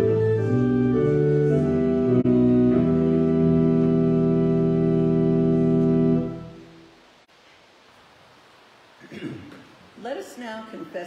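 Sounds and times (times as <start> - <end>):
church organ playing hymn: 0.0 - 6.7.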